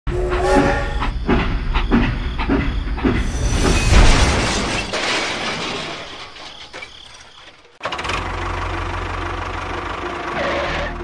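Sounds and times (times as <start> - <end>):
steam train whistle: 0.1 - 1.1
steam train chuffing: 0.1 - 3.9.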